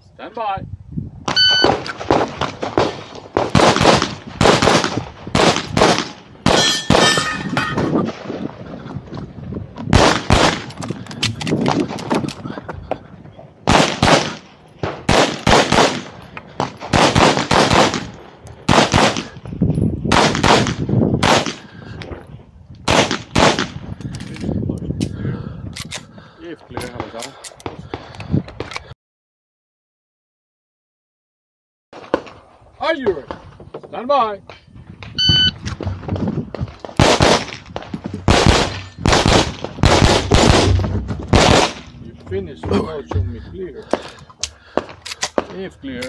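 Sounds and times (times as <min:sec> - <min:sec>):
pistol shots: 0:01.3 - 0:07.6, 0:09.9 - 0:12.1, 0:13.7 - 0:19.4, 0:20.1 - 0:21.7, 0:22.9 - 0:23.8, 0:36.9 - 0:42.0.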